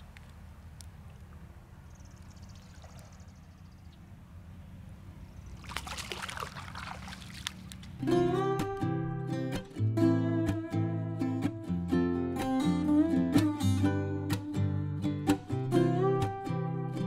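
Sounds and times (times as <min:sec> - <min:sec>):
water splashing and trickling: 0:02.2 - 0:03.5, 0:05.4 - 0:08.1
acoustic guitar music: 0:08.0 - 0:17.0.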